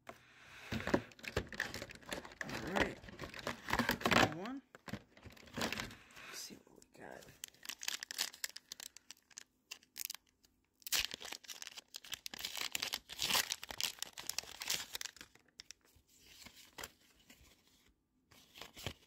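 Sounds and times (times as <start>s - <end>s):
foil wrapper tearing: 7.4s - 15.8s.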